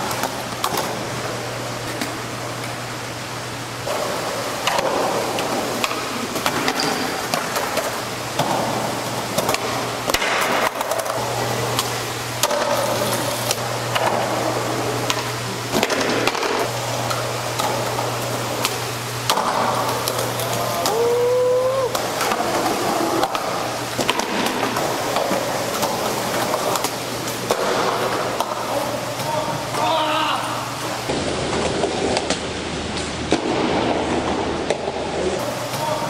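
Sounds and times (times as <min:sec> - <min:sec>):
skateboard clacks: 0:03.8 - 0:21.0, 0:21.9 - 0:29.8
skateboard wheels rolling: 0:03.8 - 0:29.2, 0:31.1 - 0:35.3.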